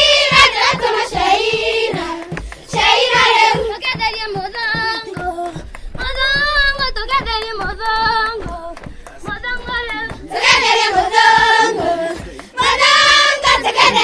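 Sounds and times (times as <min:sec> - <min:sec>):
children singing: 0:00.0 - 0:05.5, 0:09.4 - 0:14.0.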